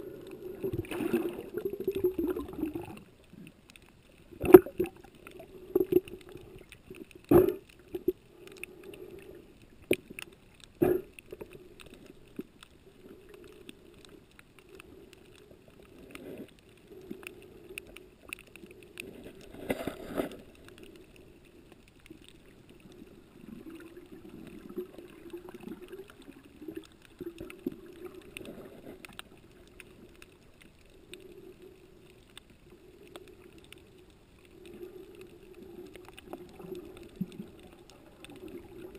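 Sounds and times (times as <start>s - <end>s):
muffled underwater water rumble: 0.0s - 38.9s.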